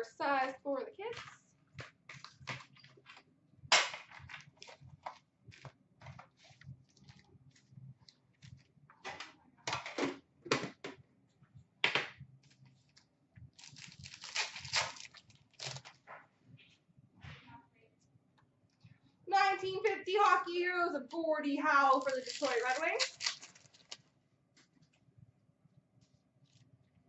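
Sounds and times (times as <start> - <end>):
card packs clicking and knocking: 13.6 - 16.0, 22.0 - 24.0
pack wrapper crinkling: 13.6 - 16.0, 21.8 - 24.1.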